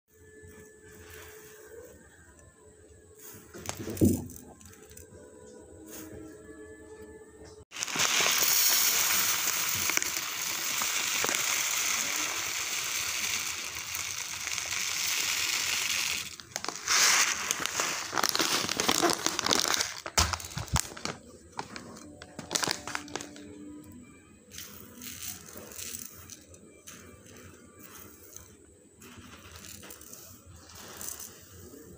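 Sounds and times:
scattered clicks of rice grains: 3.1s - 5.1s, 7.8s - 23.5s, 24.5s - 31.9s
rice grains pouring onto metal plate: 3.2s - 5.0s, 7.7s - 23.4s, 24.5s - 31.9s
plastic bag crinkling: 7.8s - 23.5s.

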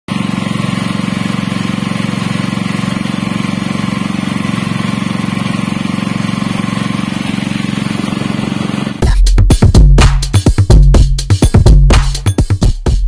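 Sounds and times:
small petrol engine running: 0.1s - 9.1s.

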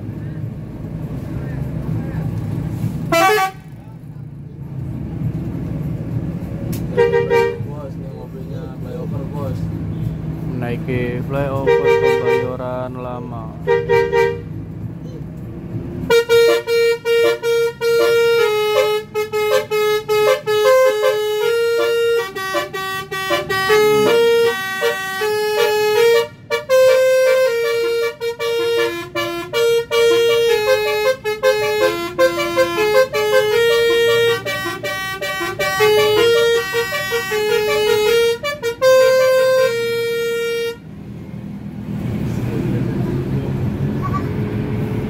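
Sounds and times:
musical air horn playing a tune: 3.1s - 3.6s, 16.1s - 40.8s.

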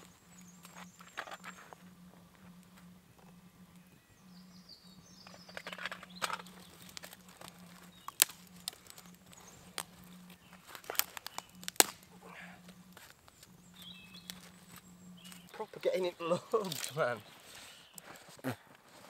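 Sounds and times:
bird chirping faintly: 0.0s - 18.1s
wood fire crackling: 0.0s - 19.0s
sharp cracks of fire: 6.2s - 13.5s.

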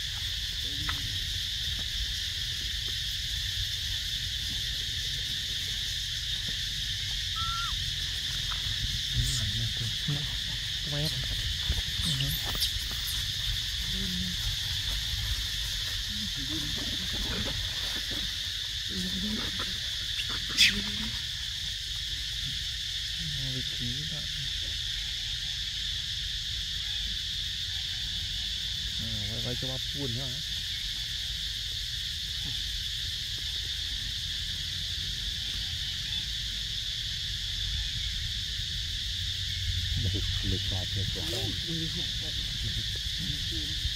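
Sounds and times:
insects droning: 0.0s - 43.9s
sharp high squeak: 7.4s - 7.8s.

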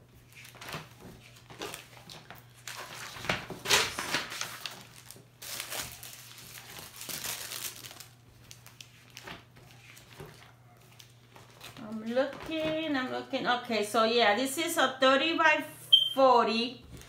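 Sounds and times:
binder pages rustling: 0.1s - 13.2s.

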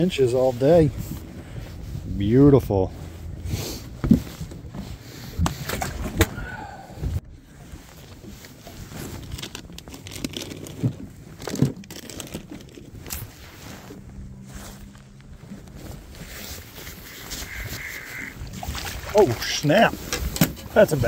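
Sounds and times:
clothing rustling: 7.6s - 18.2s.

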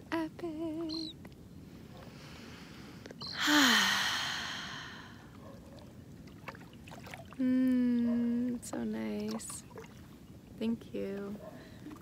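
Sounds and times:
person sighing: 3.4s - 5.2s.

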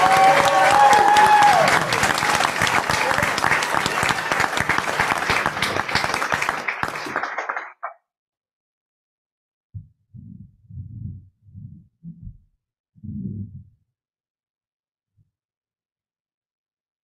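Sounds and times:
people applauding: 0.0s - 8.0s.

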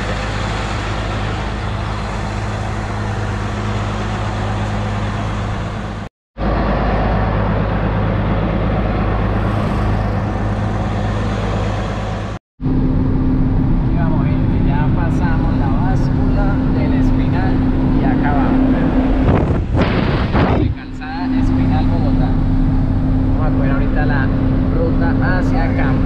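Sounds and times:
diesel truck engine running: 0.0s - 26.0s
tyre and wind noise: 19.0s - 20.9s.

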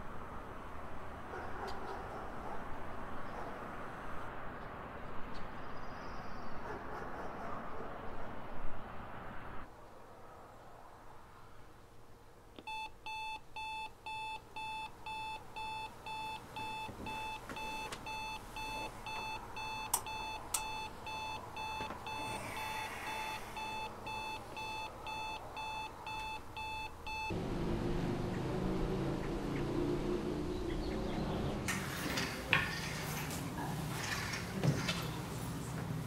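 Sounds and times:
alarm clock beeping: 12.7s - 27.3s.

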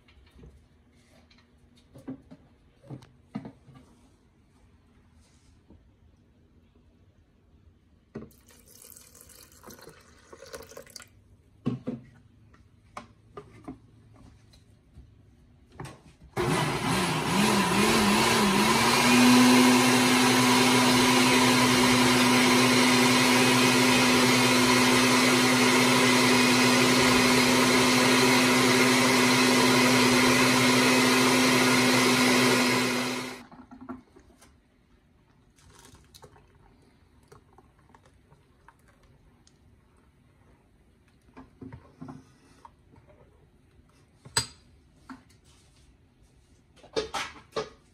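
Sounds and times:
blender running: 16.4s - 33.4s.

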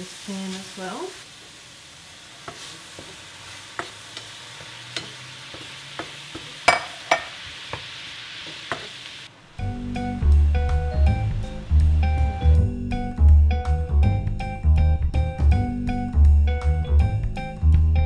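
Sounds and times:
banana slices sizzling in a pan: 0.0s - 12.8s
wooden spatula tapping and scraping: 2.4s - 9.0s.

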